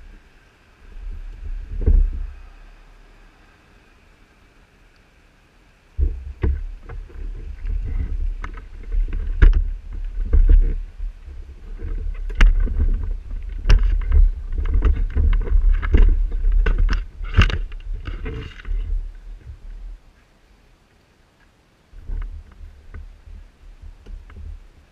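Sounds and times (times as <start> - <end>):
camera handling noise on bark: 6.0 - 20.3.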